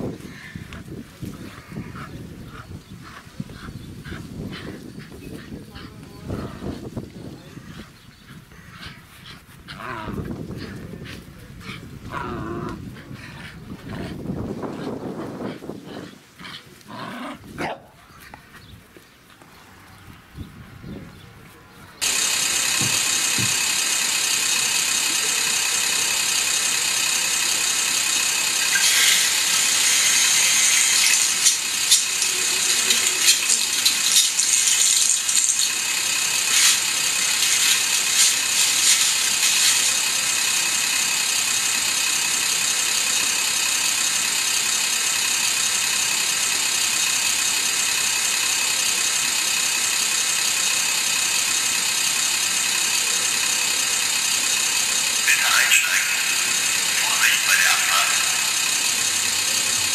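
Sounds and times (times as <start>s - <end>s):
model train diesel engine sound: 0.0s - 16.9s, 19.9s - 59.9s
rattling clatter: 22.0s - 41.9s.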